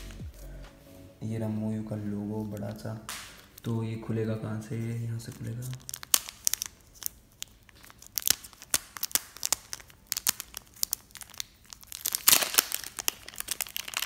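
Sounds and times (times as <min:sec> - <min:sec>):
plastic wrap crinkling: 0:04.7 - 0:14.0.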